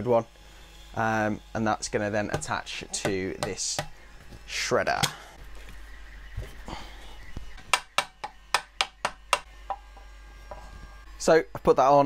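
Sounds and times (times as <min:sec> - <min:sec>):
sharp metal knocks: 0:02.3 - 0:04.0, 0:07.6 - 0:10.6.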